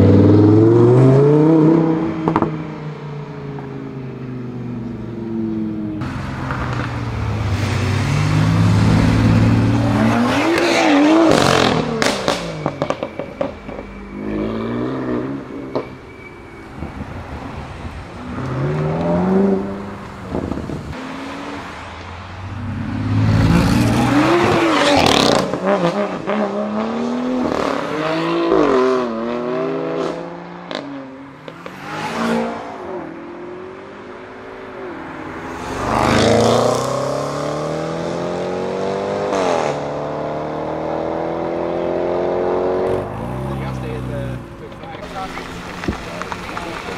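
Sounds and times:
sports cars accelerating: 0.0 - 46.9
exhaust pops and crackles: 44.6 - 46.9.

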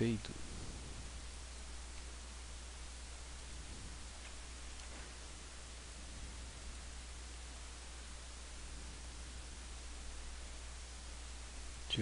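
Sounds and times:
recording hiss and hum: 0.0 - 12.0.

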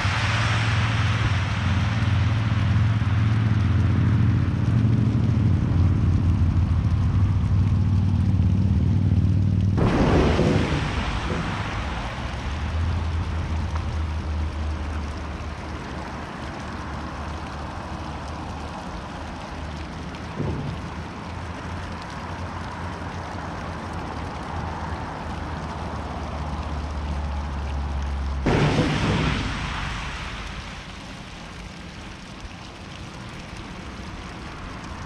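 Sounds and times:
low hum: 0.0 - 16.4, 19.8 - 23.5
tyres spraying through water: 0.0 - 35.0.

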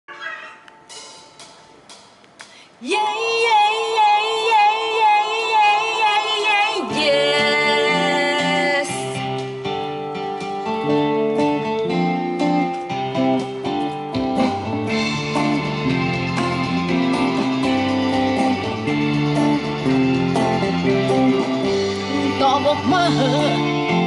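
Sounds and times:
woman singing with vibrato: 2.8 - 9.3, 22.1 - 23.8
electric guitar chords: 5.3 - 24.0.

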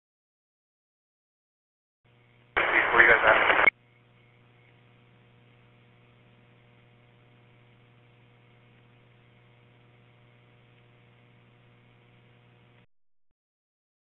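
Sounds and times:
faint low hum with hiss: 2.1 - 12.9.

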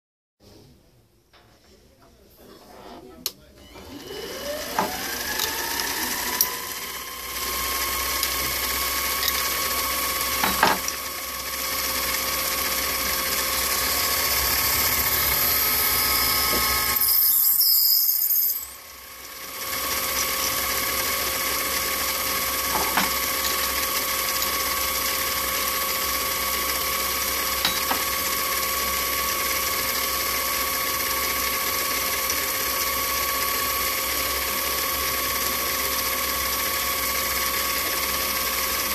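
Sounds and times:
metal lathe gear whine: 3.6 - 38.9
drill bit squealing in metal: 8.2 - 9.8, 14.3 - 18.8, 19.8 - 21.0.

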